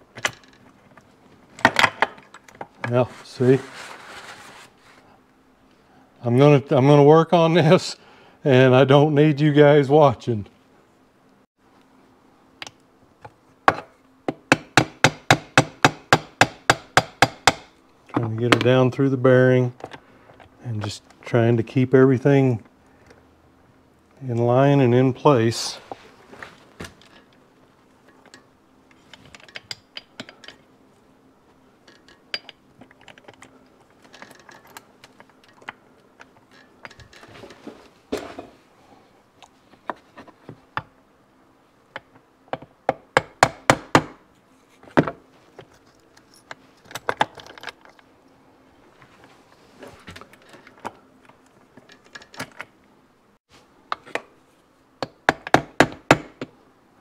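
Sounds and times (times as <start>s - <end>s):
metal parts clinking: 31.8s - 35.7s.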